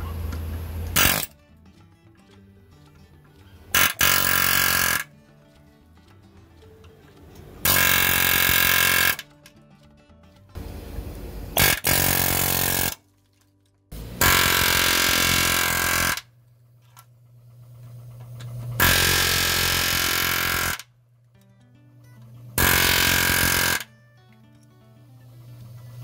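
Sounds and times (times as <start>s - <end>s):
air hammer hammering metal: 0.9s - 1.4s, 3.7s - 5.2s, 7.6s - 9.3s, 11.6s - 13.0s, 13.9s - 16.4s, 18.8s - 20.9s, 22.6s - 23.9s.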